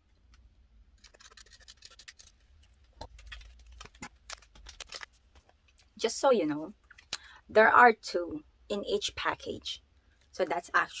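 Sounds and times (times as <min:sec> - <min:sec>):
plastic sleeve and paper rustling: 0:00.9 - 0:05.8.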